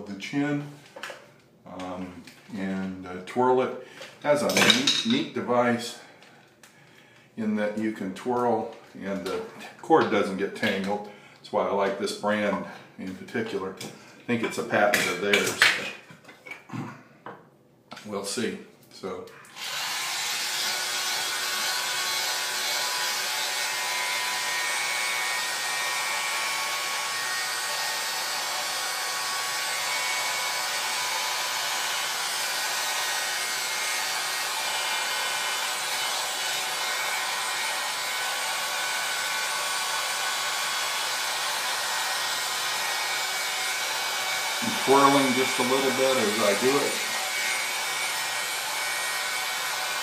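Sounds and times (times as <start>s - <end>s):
hot-air brush fan whirring: 19.5s - 50.0s.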